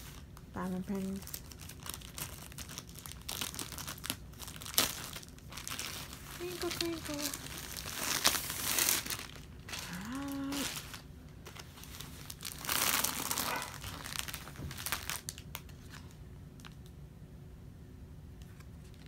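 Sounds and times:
plastic wrapping crinkling: 0:00.0 - 0:16.9
person humming: 0:09.7 - 0:10.8.

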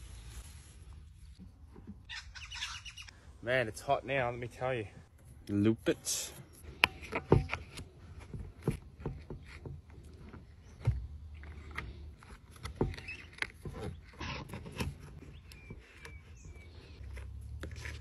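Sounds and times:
hands working wire: 0:06.3 - 0:18.0.

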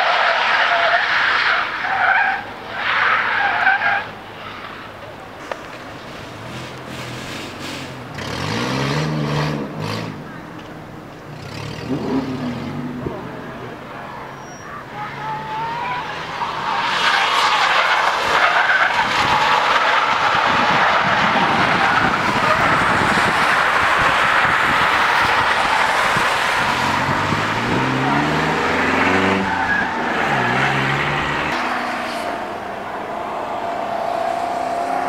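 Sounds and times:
tyres screeching: 0:00.0 - 0:10.7, 0:14.1 - 0:35.0
car engine revving: 0:06.2 - 0:10.4, 0:11.4 - 0:13.8, 0:15.0 - 0:35.0.

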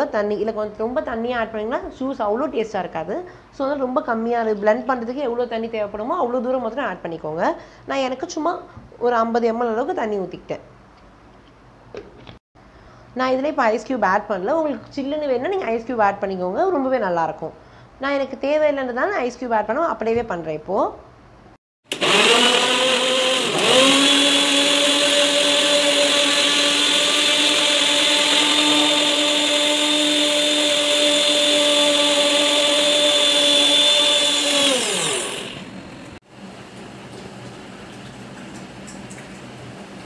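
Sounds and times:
mixer grinder motor whining: 0:21.9 - 0:36.2.

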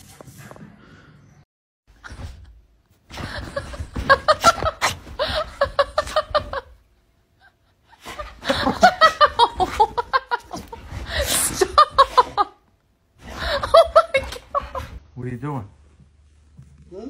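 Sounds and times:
woman laughing: 0:03.3 - 0:06.8, 0:07.4 - 0:12.6, 0:13.4 - 0:15.0.

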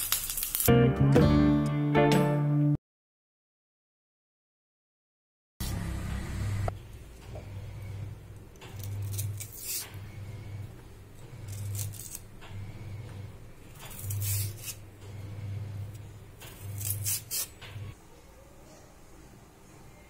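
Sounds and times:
knife scraping banana peel: 0:08.7 - 0:10.0, 0:11.4 - 0:12.3, 0:13.8 - 0:14.9, 0:16.5 - 0:17.6.

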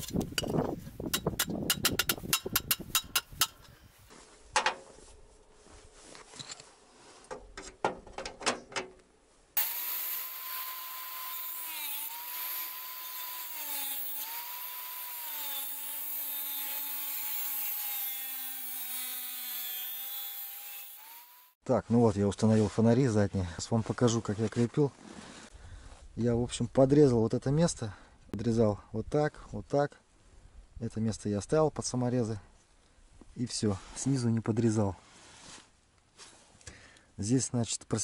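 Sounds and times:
angle grinder cutting: 0:09.6 - 0:21.6.

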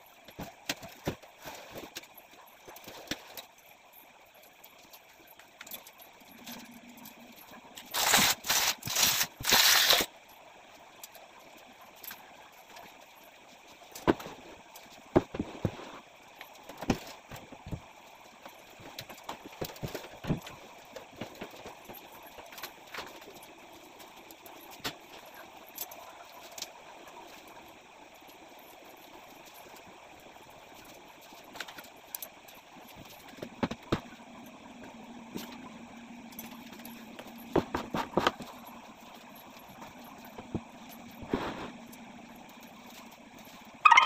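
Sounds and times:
loud rustling or scraping: 0:07.9 - 0:10.1.

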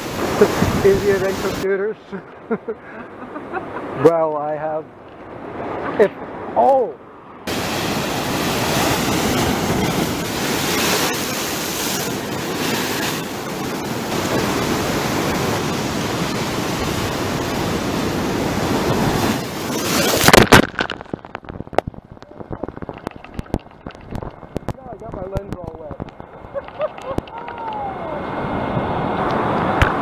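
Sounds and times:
ocean surf crashing on rocks: 0:00.0 - 0:30.0
loud water splash: 0:07.5 - 0:24.6.

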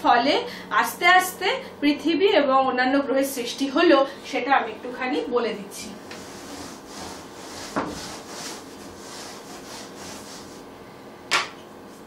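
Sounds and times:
duster rubbing on blackboard: 0:06.0 - 0:10.7.

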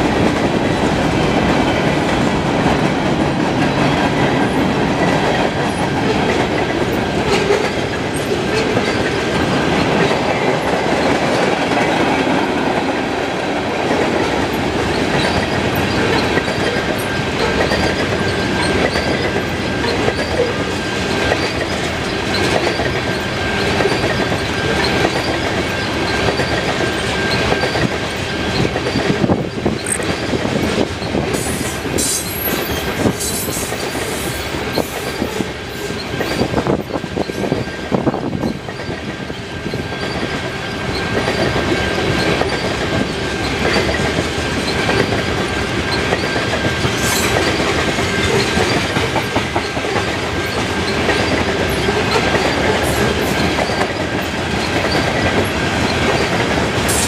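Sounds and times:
freight train rumbling past: 0:00.0 - 0:57.0
high wheel squeal: 0:31.1 - 0:43.9, 0:50.4 - 0:55.2.

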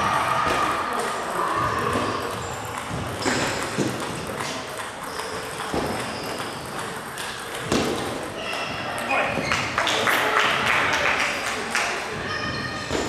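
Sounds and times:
table tennis balls clicking: 0:01.9 - 0:09.8.

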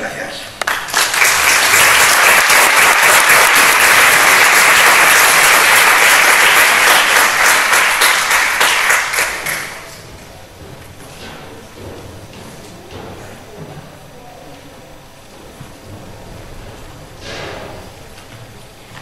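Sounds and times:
audience applauding: 0:00.6 - 0:10.0.

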